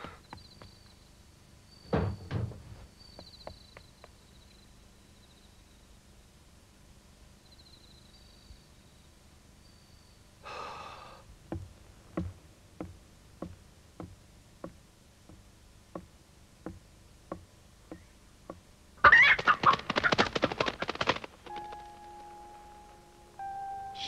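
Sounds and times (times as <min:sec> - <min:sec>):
slow even knocks: 0:11.4 - 0:18.6
rooster wing-flapping: 0:19.0 - 0:22.1.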